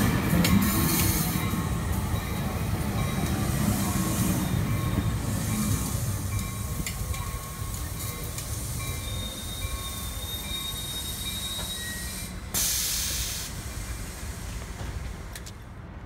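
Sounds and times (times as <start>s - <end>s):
train rolling with low rumble: 0.0s - 16.0s
wheel squeal: 9.0s - 12.3s
loud burst of air hiss: 12.5s - 14.8s.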